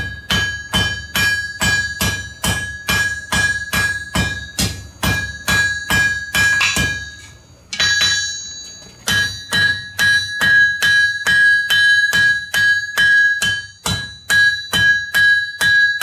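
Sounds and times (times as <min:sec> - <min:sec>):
hammers ringing on anvil: 0:00.0 - 0:16.0.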